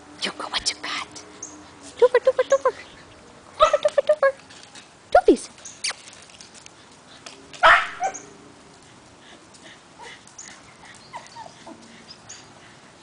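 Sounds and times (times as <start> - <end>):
puppy yelping: 3.6 - 4.2, 7.6 - 8.3, 10.0 - 11.7
puppies yipping and whimpering: 10.0 - 12.5.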